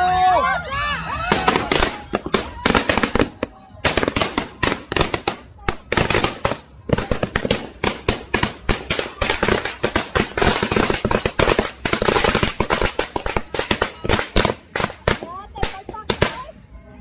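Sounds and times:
firecrackers banging: 1.2s - 16.6s.

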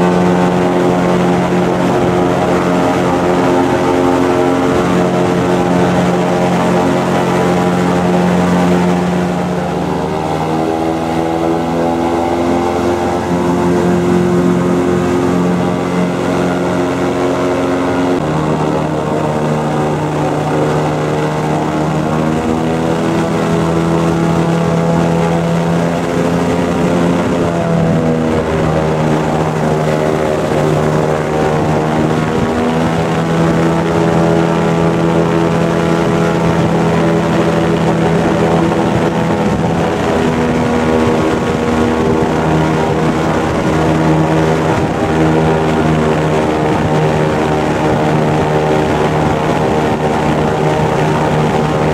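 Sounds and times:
airboat engine and propeller: 0.0s - 51.9s.

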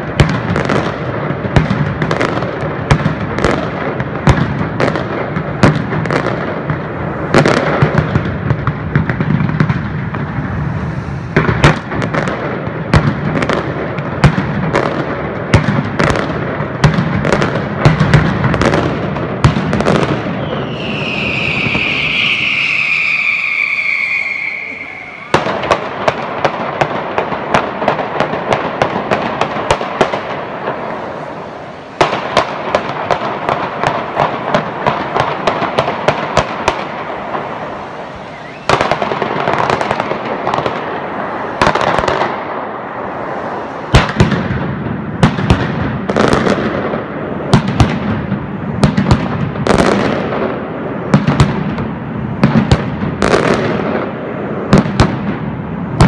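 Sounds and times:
firecracker bangs: 0.0s - 56.0s
deep explosions: 4.0s - 14.6s, 19.5s - 50.3s
firecrackers rattling: 17.0s - 50.4s.

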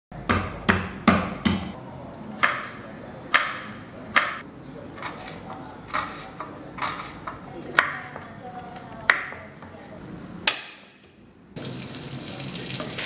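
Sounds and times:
knife chopping on wooden board: 2.4s - 4.4s.

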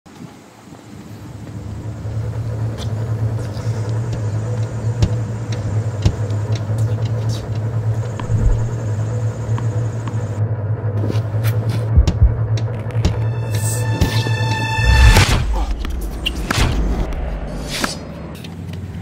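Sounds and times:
low rumbling hum: 0.6s - 19.0s
sharp ticks and knocks: 3.8s - 8.9s, 11.8s - 13.3s.

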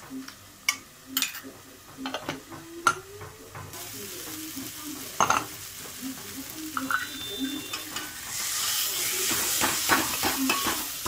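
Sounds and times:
sizzling hiss: 3.7s - 11.0s.

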